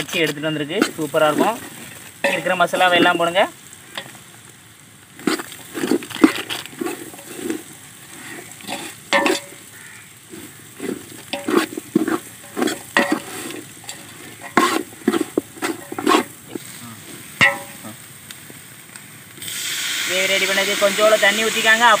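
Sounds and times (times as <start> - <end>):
steel ladle scraping metal pot: 0.0 - 3.4, 5.2 - 16.6, 17.4 - 17.8
light sizzle: 0.0 - 22.0.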